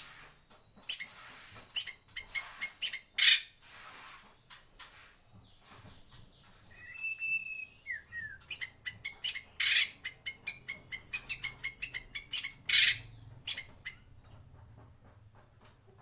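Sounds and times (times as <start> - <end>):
bird whistling song: 6.6 - 13.6.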